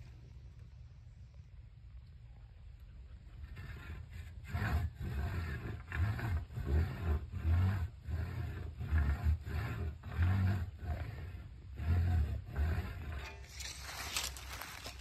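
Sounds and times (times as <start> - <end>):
stake rubbing grinding rasp: 3.2 - 15.0.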